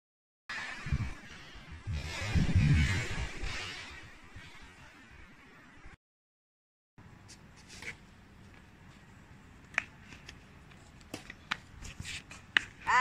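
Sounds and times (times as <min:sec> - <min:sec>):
faint outdoor background noise: 0:07.0 - 0:13.0.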